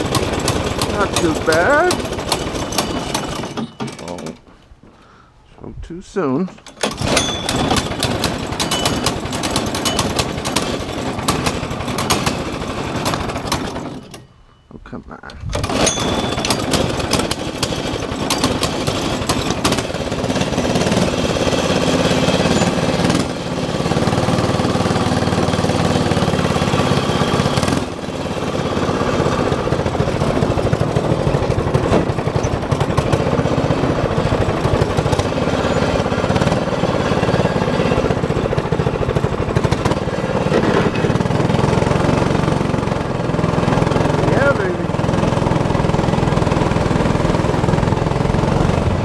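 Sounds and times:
go-kart engine running: 0.0s - 4.4s, 6.6s - 14.3s, 15.5s - 49.0s.

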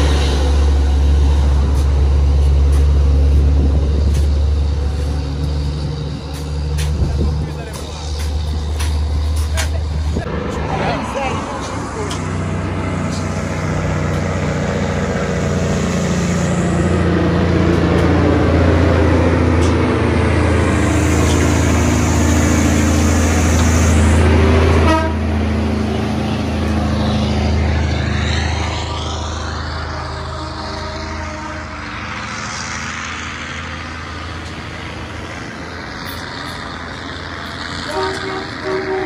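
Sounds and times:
diesel truck engine pulling uphill: 0.0s - 39.0s
short horn toot: 24.8s - 25.2s, 37.9s - 39.0s.

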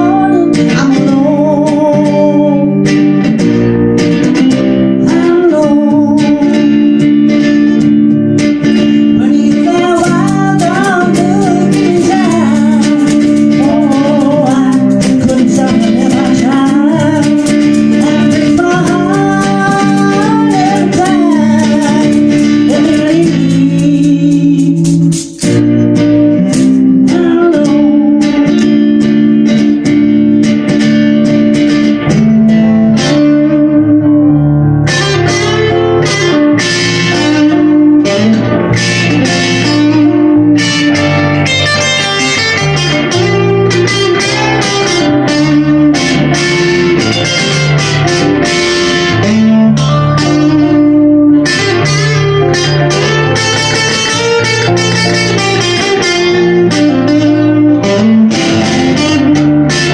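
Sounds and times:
woman singing: 0.0s - 3.0s, 5.0s - 6.9s, 9.1s - 25.1s, 26.2s - 28.8s
electric guitar: 0.0s - 59.9s
hand shaker rattling: 9.8s - 25.8s, 26.5s - 26.8s.

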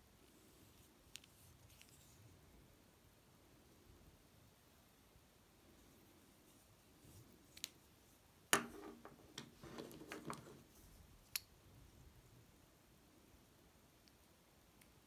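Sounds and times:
light clicks of pens: 0.7s - 2.1s, 7.5s - 7.8s, 14.0s - 15.0s
pens knocking and clattering on wood: 8.6s - 10.6s.

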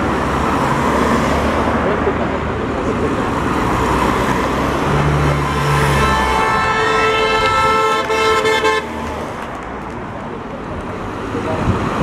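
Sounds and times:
cars passing at speed: 0.0s - 12.0s
car horn steady note: 5.9s - 9.0s.

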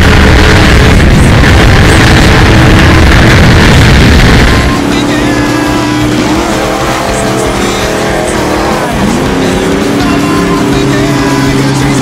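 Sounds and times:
wind noise rushing: 0.0s - 7.7s
race truck engines revving: 0.0s - 12.0s.

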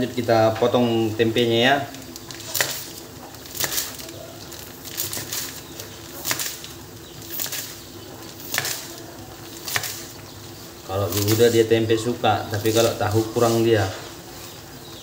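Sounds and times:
knife cutting on cutting board: 8.4s - 8.9s.

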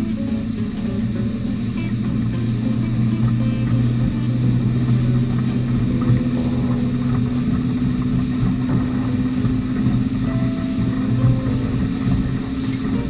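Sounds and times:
motorboat engines droning: 0.0s - 13.0s
rushing water: 0.0s - 13.0s
wind noise: 0.0s - 13.0s.

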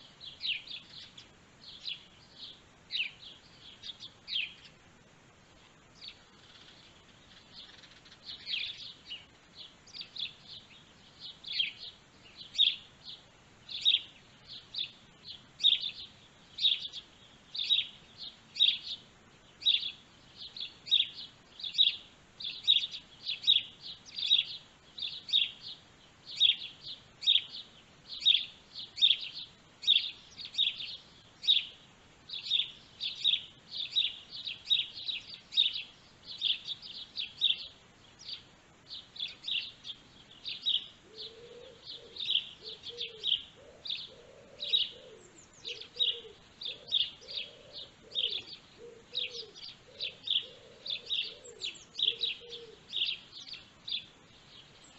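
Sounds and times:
small birds chirping: 0.0s - 54.9s.

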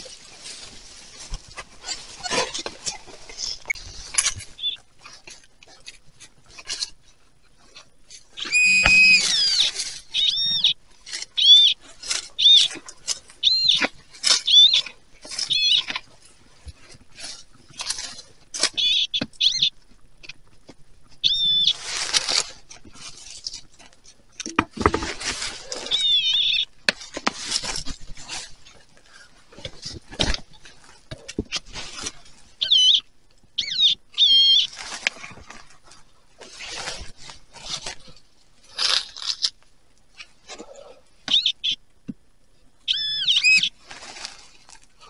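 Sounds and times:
dirt and dry leaves rustling: 0.0s - 45.0s
high warbling beeps: 8.4s - 9.6s.

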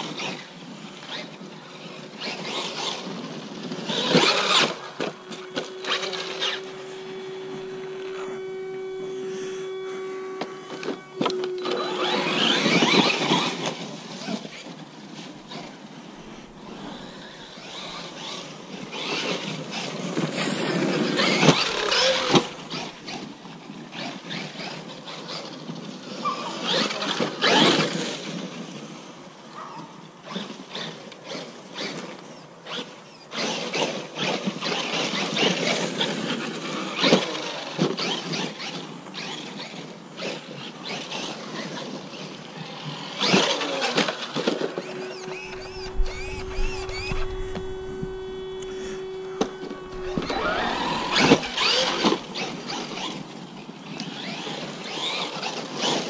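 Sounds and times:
rc truck motor whining: 0.0s - 56.0s
tyres churning dirt: 10.4s - 25.9s, 30.3s - 56.0s.

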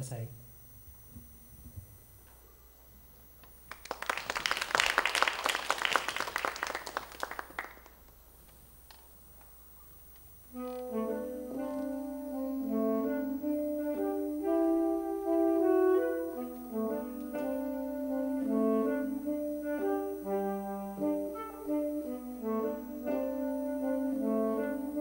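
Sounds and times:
audience applause: 3.6s - 8.2s
saxophone duet: 3.7s - 8.0s, 10.4s - 25.0s.

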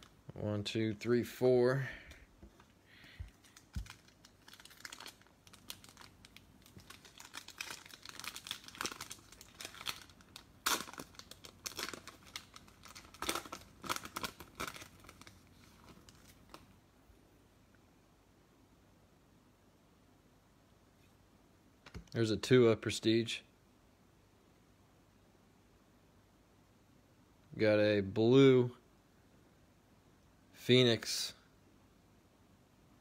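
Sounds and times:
foil wrappers crinkling and tearing: 2.6s - 16.7s.

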